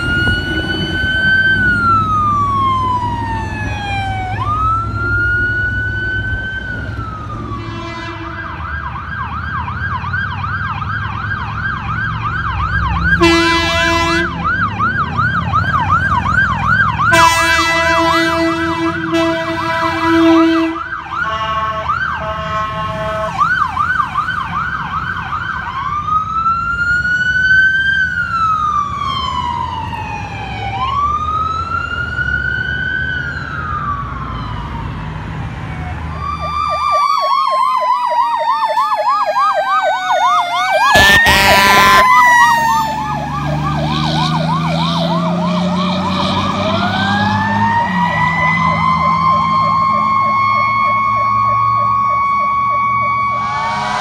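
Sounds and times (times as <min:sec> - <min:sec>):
emergency vehicle siren: 0:00.0 - 0:54.0
low traffic rumble: 0:00.0 - 0:54.0
vehicle horn blast: 0:07.6 - 0:08.5, 0:13.2 - 0:14.3, 0:17.1 - 0:23.4, 0:40.9 - 0:42.1, 0:53.3 - 0:54.0.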